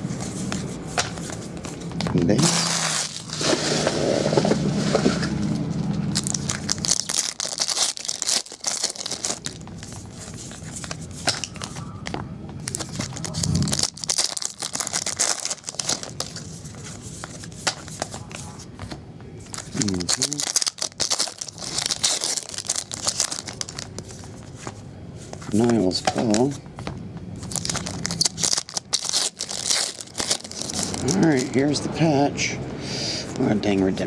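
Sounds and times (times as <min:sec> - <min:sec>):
foil wrappers crinkling and tearing: 0:02.3 - 0:03.9, 0:06.1 - 0:11.8, 0:12.6 - 0:18.2, 0:19.5 - 0:24.3, 0:27.4 - 0:31.7
cards rustling and clicking: 0:06.1 - 0:26.6, 0:27.4 - 0:31.6.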